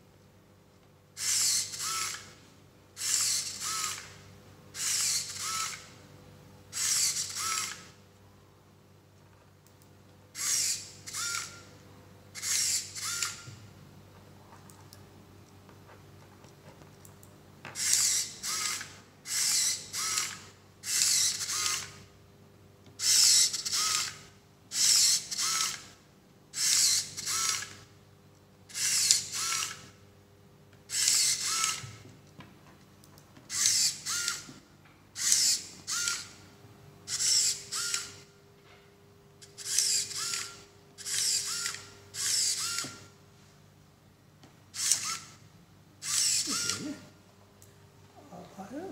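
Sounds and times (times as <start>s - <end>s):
servo motors whirring: 1.2s - 2.4s, 3.0s - 4.2s, 4.8s - 6.0s, 6.7s - 8.0s, 10.4s - 11.7s, 12.4s - 13.6s, 17.8s - 22.0s, 23.0s - 26.0s, 26.6s - 27.8s, 28.7s - 30.0s, 30.9s - 32.0s, 33.5s - 34.6s, 35.2s - 36.4s, 37.1s - 38.3s, 39.4s - 43.2s, 44.8s - 45.4s, 46.0s - 47.1s.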